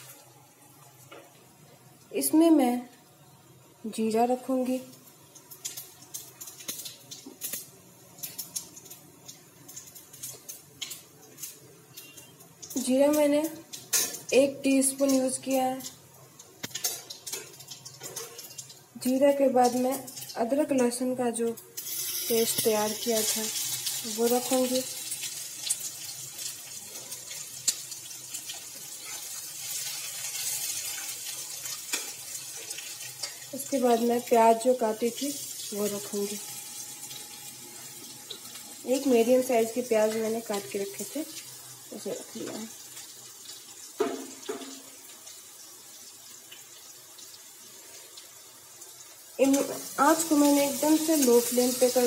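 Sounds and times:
seeds crackling in hot oil: 0:00.0 - 0:52.0
metal spatula stirring: 0:28.5 - 0:33.5.

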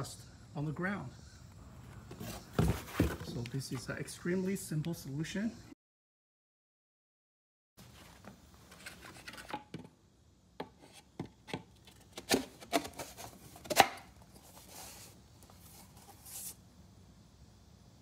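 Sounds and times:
plywood boards knocking and scraping: 0:02.1 - 0:03.4.

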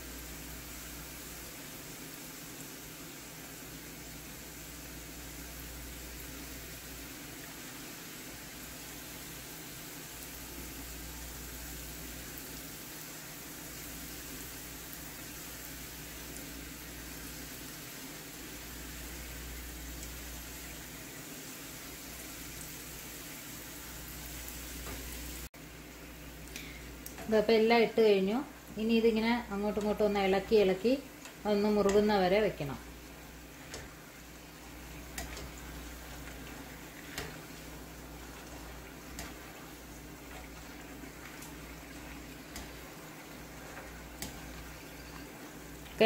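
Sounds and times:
dough sizzling in hot oil: 0:00.0 - 0:46.0.

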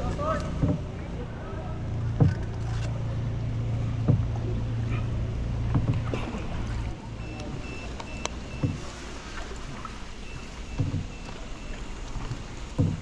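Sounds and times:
low motor hum: 0:00.0 - 0:13.0
knocks from boat: 0:00.2 - 0:01.0, 0:02.0 - 0:02.7, 0:03.9 - 0:06.8, 0:08.0 - 0:08.9, 0:10.5 - 0:11.4, 0:12.2 - 0:13.0.

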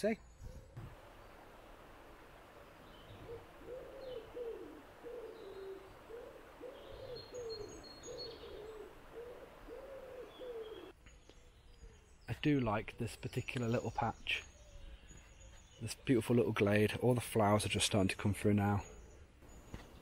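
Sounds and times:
small birds chirping: 0:02.7 - 0:20.0
pigeon cooing: 0:03.1 - 0:10.9.

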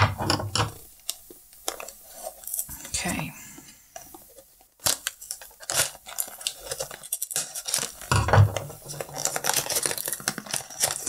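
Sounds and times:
cardboard scraping and tearing: 0:08.9 - 0:11.0.

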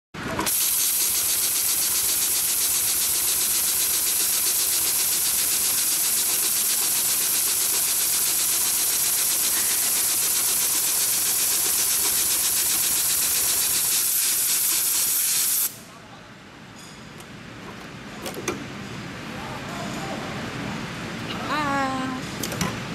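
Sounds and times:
sewing machine stitching: 0:00.2 - 0:15.0.

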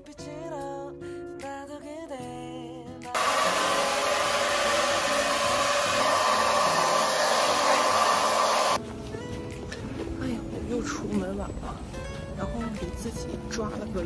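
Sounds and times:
background music: 0:00.0 - 0:03.7, 0:08.8 - 0:14.0
hair dryer running: 0:03.2 - 0:08.8.

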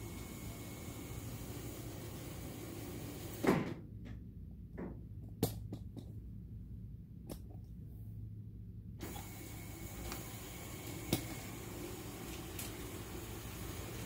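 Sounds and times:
low steady hum: 0:00.0 - 0:14.0
thump: 0:03.4 - 0:03.8.

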